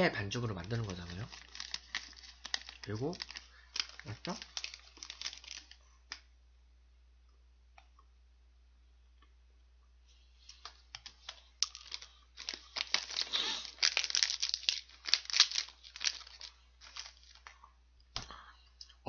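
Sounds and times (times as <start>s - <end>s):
plastic wrapper crinkling and tearing: 0.2s - 6.3s, 10.4s - 17.6s.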